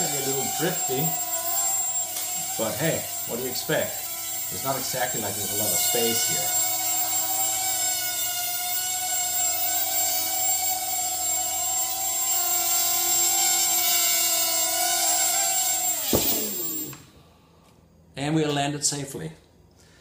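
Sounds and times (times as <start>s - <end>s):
quadcopter motors whining: 0.0s - 17.2s
drone touching down knock: 16.0s - 17.0s.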